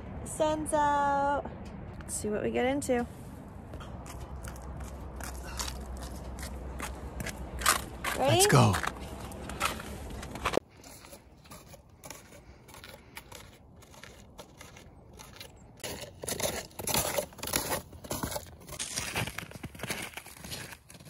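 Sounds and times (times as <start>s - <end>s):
snowshoes crunching on snow: 8.2s - 8.8s, 11.0s - 21.0s.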